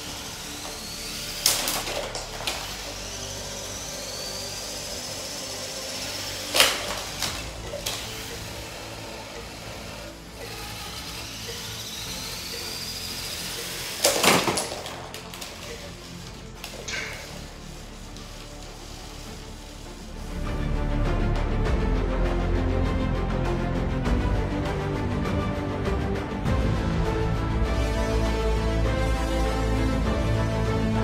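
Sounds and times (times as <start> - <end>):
small electric motors whining: 0.0 - 21.5, 27.6 - 31.0
plastic robots crashing together: 1.4 - 2.9, 6.5 - 8.1, 13.7 - 17.5.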